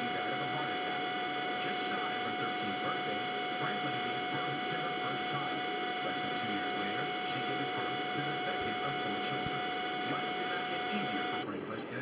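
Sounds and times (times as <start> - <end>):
high whine: 0.0 - 11.6
steady background hum: 0.0 - 12.0
faint muffled talk: 0.1 - 12.0.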